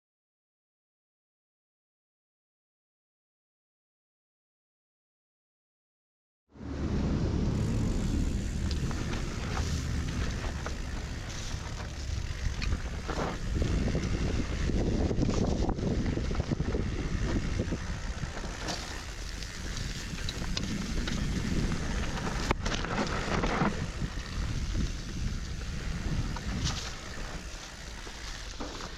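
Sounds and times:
bike tyres on dirt trail: 6.6 - 28.9
wind buffeting microphone: 6.6 - 28.9
bike clicks and knocks: 7.4 - 28.9.

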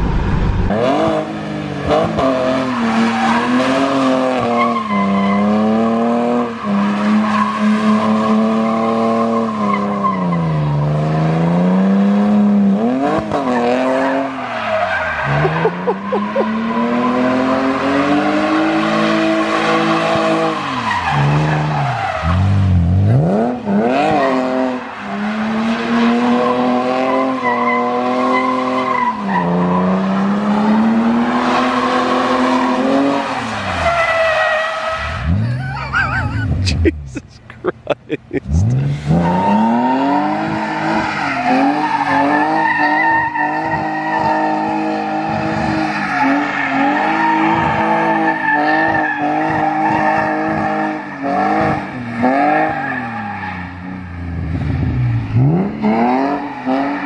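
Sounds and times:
car engine revving: 0.0 - 4.6, 21.3 - 28.9, 38.4 - 49.4, 54.2 - 57.0.

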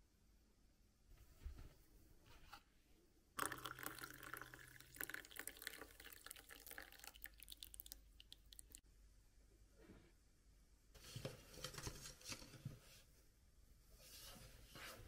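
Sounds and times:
coffee pouring into mug: 3.4 - 8.8.

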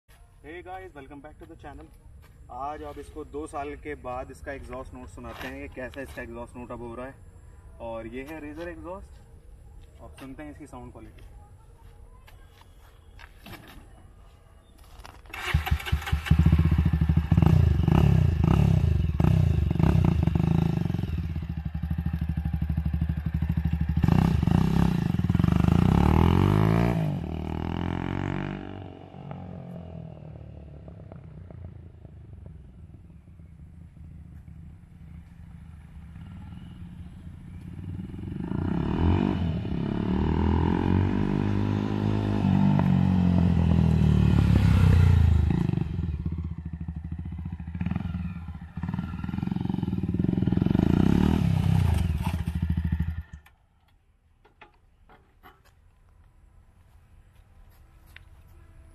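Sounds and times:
motorcycle engine revving: 15.3 - 53.5.

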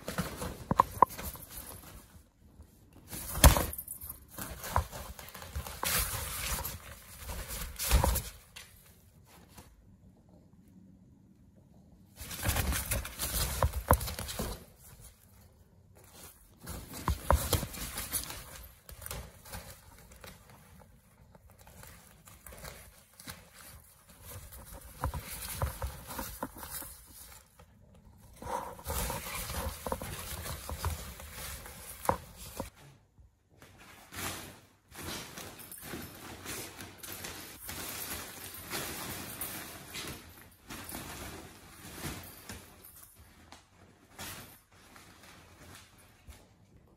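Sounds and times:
crinkly fabric tunnel rustling: 0.0 - 9.8, 12.1 - 33.0, 33.6 - 46.9
paws scratching on fabric: 19.5 - 32.7.

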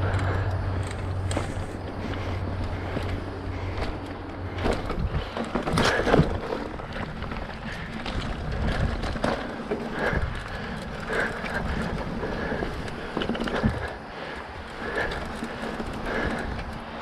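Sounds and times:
bike rattling over bumps: 0.0 - 17.0
bike tyres on dirt trail: 0.0 - 17.0.

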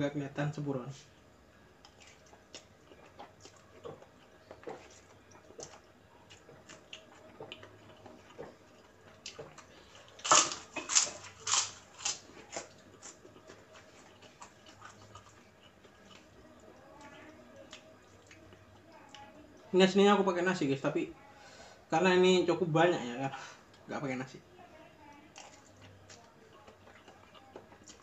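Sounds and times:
quiet chewing: 1.0 - 19.7, 24.7 - 28.0
loud crunches of cracker: 10.2 - 13.2.

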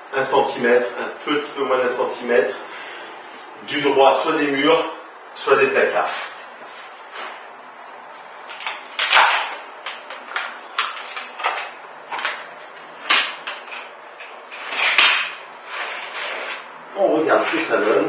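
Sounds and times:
parquet panels scraping on floor: 14.6 - 16.7.

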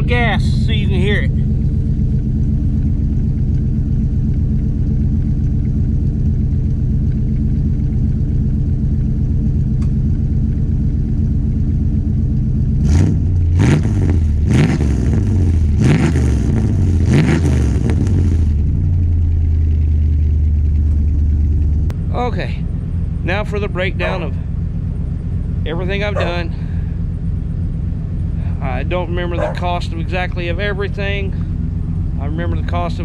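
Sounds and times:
engine revving: 0.0 - 4.6, 12.6 - 24.6, 25.6 - 27.0, 28.2 - 33.0
engine idling with throaty exhaust: 0.0 - 33.0.

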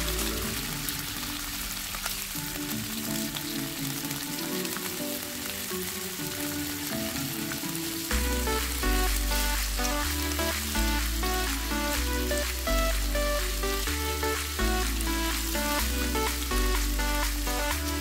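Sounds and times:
soft background music: 0.0 - 18.0
meat sizzling in a frying pan: 0.2 - 8.8.

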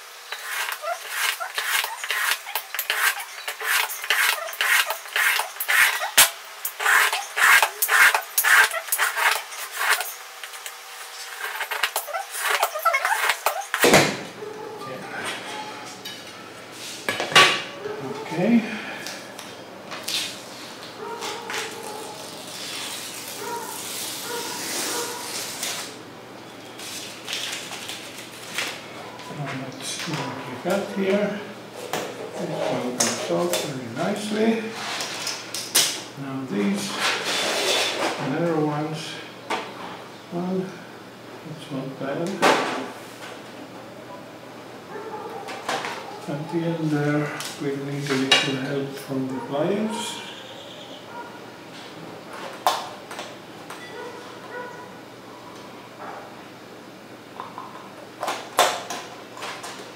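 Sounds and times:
knife blade scraping metal sheet: 0.3 - 13.9.

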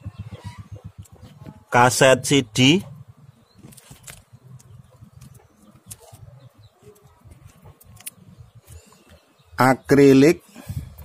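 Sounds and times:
low rumble: 0.0 - 5.8.

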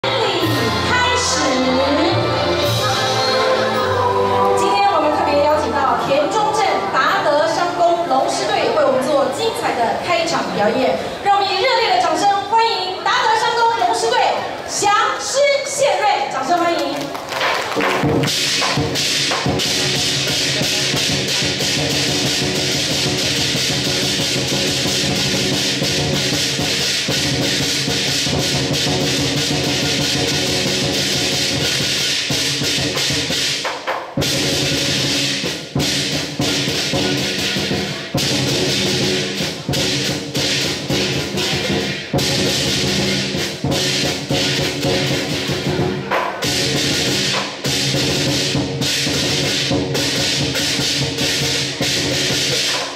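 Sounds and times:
big drum beaten fast: 17.8 - 52.9
clashing cymbals: 18.2 - 52.9.

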